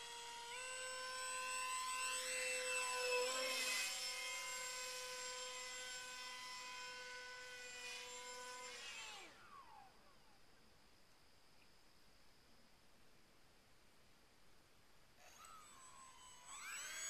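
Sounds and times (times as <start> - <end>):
model plane motor whine: 0.0 - 10.0, 15.2 - 17.0.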